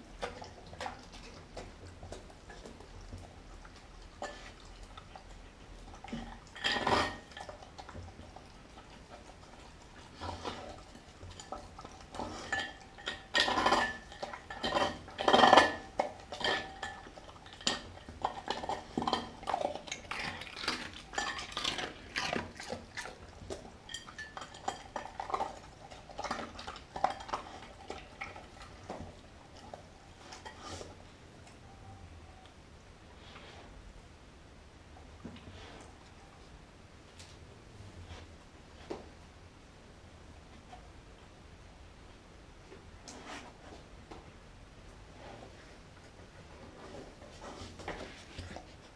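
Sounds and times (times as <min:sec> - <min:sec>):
dog teeth clinking on glass bowl: 0:23.0 - 0:27.6.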